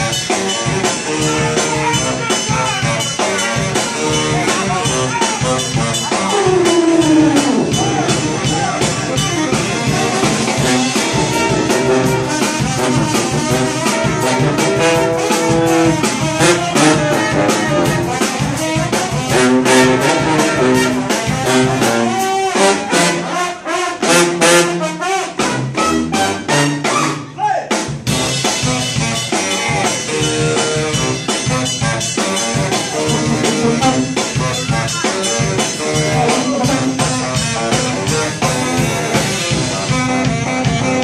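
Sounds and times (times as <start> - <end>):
brass band playing: 0.0 - 41.0
drum kit beat: 0.0 - 41.0
horn sliding down in pitch: 6.1 - 9.4.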